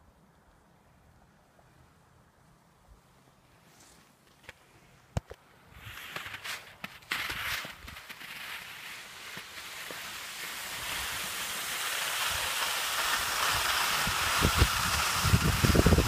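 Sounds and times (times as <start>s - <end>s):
skis sliding over snow: 5.7s - 16.0s
wind on microphone: 13.5s - 16.0s.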